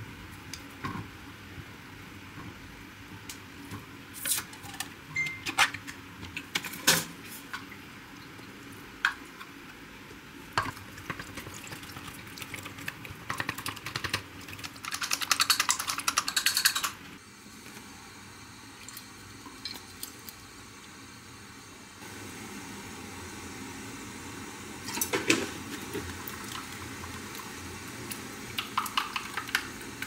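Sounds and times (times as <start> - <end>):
fast clicking: 13.3 - 17.0.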